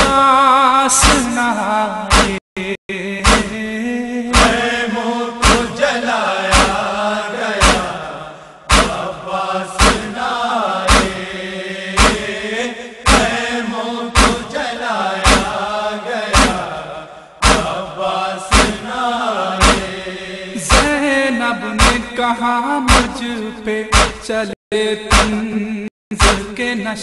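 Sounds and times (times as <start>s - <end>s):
chest-beating thumps: 2.1s - 2.4s, 3.2s - 3.6s, 4.3s - 4.8s, 5.4s - 5.8s, 6.5s - 7.0s, 7.6s - 9.2s, 9.8s - 10.2s, 10.8s - 11.3s, 12.0s - 14.6s, 15.2s - 16.8s, 17.4s - 17.9s, 18.5s - 18.9s, 19.6s - 21.0s, 21.8s - 22.2s, 22.9s - 23.2s, 23.9s - 24.4s, 25.1s - 25.5s
chorus chanting mournful melody: 3.0s - 22.5s.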